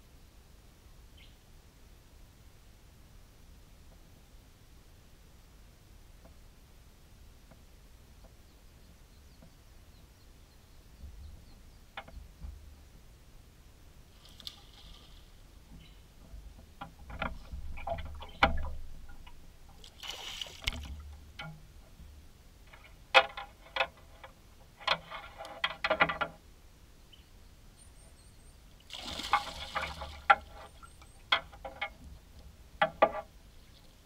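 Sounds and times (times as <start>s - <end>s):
water splashing against boat: 14.2s - 26.4s, 28.8s - 33.3s
sharp knocks and clicks: 16.6s - 19.4s, 20.6s - 22.0s, 22.7s - 26.4s, 29.4s - 33.3s.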